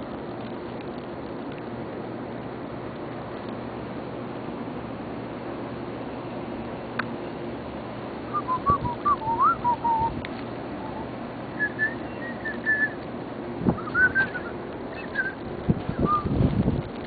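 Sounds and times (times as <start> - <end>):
steady low hum: 0.0 - 17.0
person whistling: 8.3 - 10.1, 11.6 - 13.0, 13.8 - 15.4.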